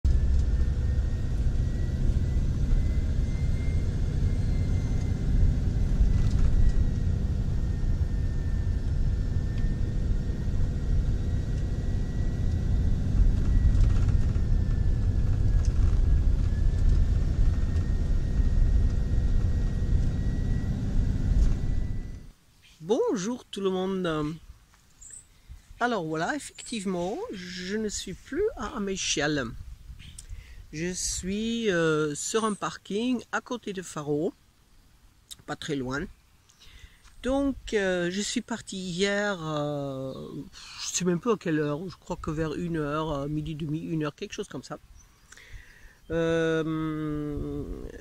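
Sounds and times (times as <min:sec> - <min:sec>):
engine and tyre rumble: 0:00.0 - 0:22.4
faint high whine: 0:00.0 - 0:48.0.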